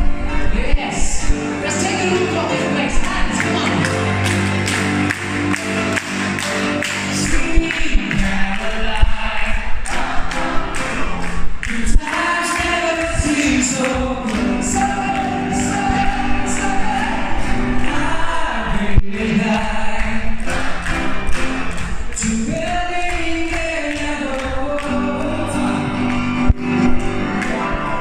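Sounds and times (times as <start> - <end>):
grand piano: 0.0 - 28.0
man singing into a microphone: 7.0 - 10.0, 11.6 - 20.7, 22.0 - 26.5.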